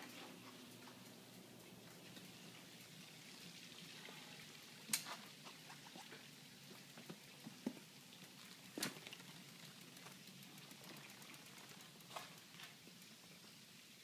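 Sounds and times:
bicycle clicks and knocks: 7.0 - 13.3.

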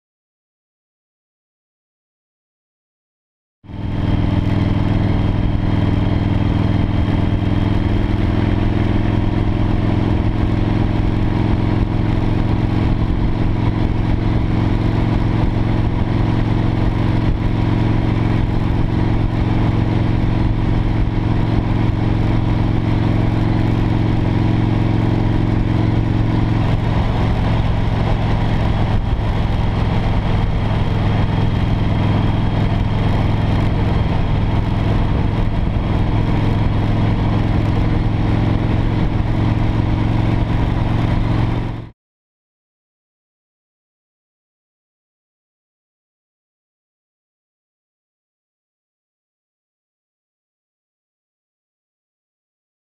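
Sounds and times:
motorcycle engine drone: 3.7 - 41.9.

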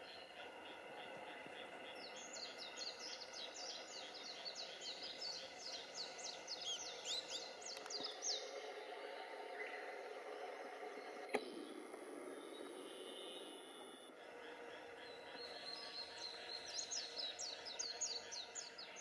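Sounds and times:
faint background hum: 0.0 - 19.0
small bird singing: 0.0 - 19.0.

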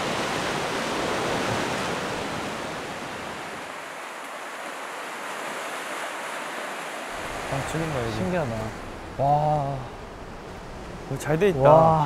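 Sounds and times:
sea waves surging over rocks: 0.0 - 12.0.

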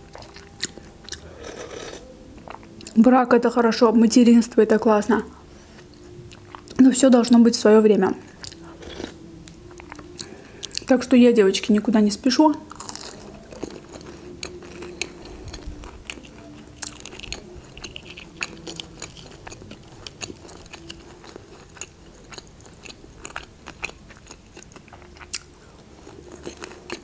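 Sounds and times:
chewing crunchy food: 0.0 - 3.0, 5.7 - 6.8, 8.3 - 10.9, 12.7 - 27.0.

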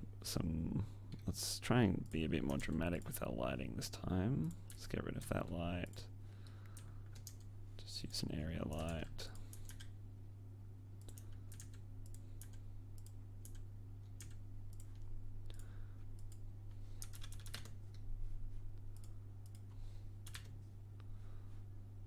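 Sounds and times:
steady low hum: 0.0 - 22.0
computer keyboard keys clicking: 6.8 - 7.5, 8.7 - 9.9, 11.0 - 16.4, 17.0 - 17.8, 20.2 - 20.5
mouse clicking: 11.0 - 16.4.

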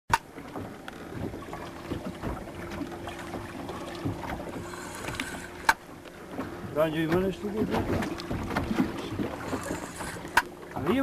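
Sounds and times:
small knocks and clicks: 0.1 - 1.4, 9.6 - 10.6
water noise: 0.1 - 11.0
wind: 0.1 - 11.0
steady hum: 0.2 - 6.9, 8.0 - 10.8.

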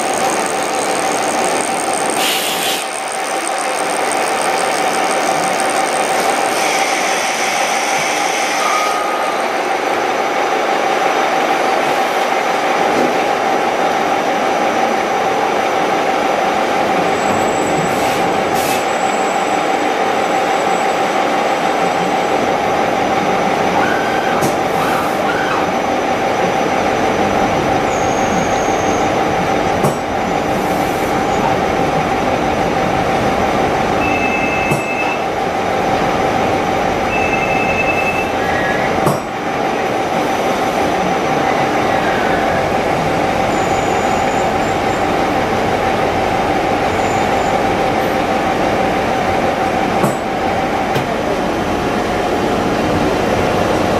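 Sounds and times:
gear cutting machine running: 0.0 - 8.7.

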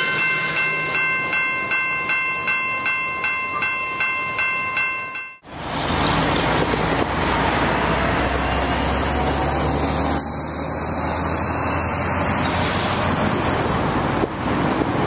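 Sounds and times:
road traffic noise: 0.0 - 15.0
truck passing: 0.0 - 15.0.

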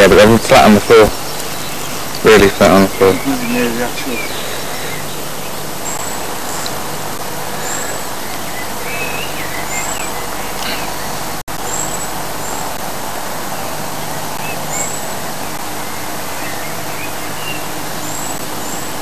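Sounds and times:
high bird chirps: 7.6 - 12.6.

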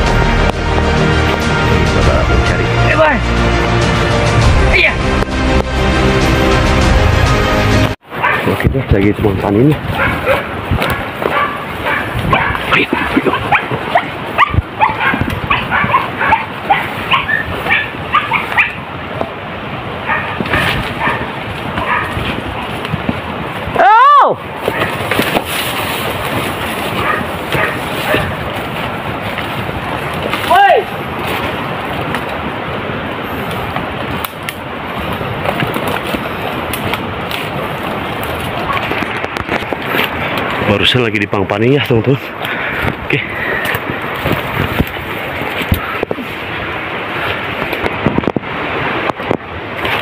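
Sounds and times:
leaves and branches rustling: 7.8 - 50.0
dogs yelping: 8.1 - 8.5, 9.9 - 18.9, 20.0 - 22.2, 26.9 - 28.4, 38.6 - 39.1
twigs snapping: 24.6 - 30.6, 33.5 - 40.6.

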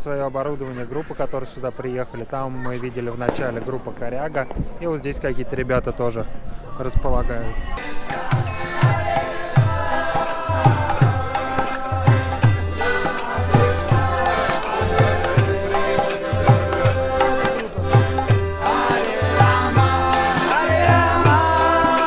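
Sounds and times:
group chanting: 7.8 - 22.0
hand drum beat: 10.5 - 22.0.

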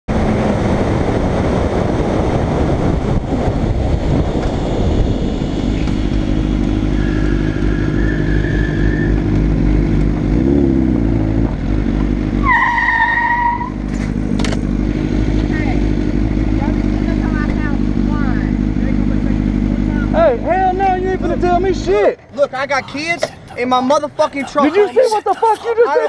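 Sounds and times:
wind rush: 0.1 - 6.6
motorcycle engine running: 13.8 - 21.7.

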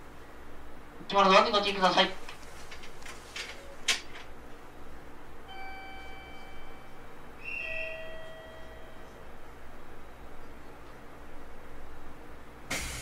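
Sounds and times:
two-tone door chime: 5.5 - 7.0, 7.6 - 9.2.

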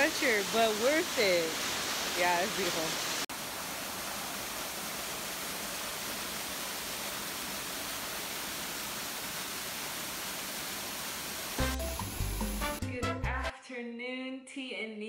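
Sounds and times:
water rushing over rocks: 0.0 - 11.7.

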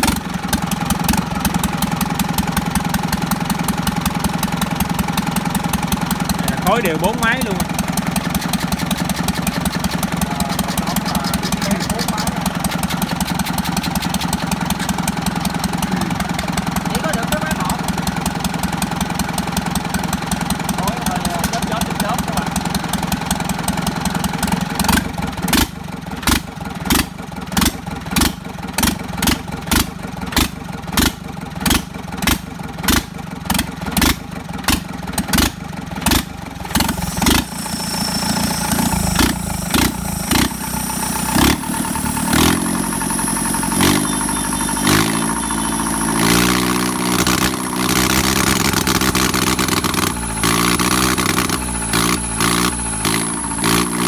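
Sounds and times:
sharp engine knock: 0.0 - 22.1
diesel tractor engine running: 0.0 - 54.0.

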